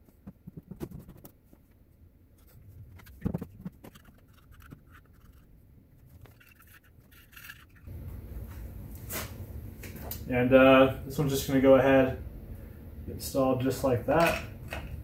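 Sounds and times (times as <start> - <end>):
bolts clicking into metal cover: 14.1 - 15.0.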